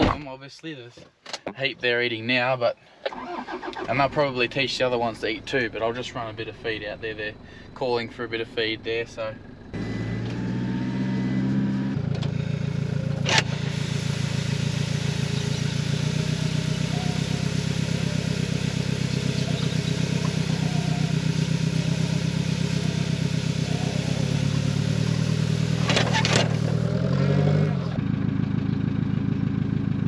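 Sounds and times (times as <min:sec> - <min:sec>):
vehicle engine running: 0:03.9 - 0:30.0
grain pouring with a hiss: 0:13.6 - 0:15.8.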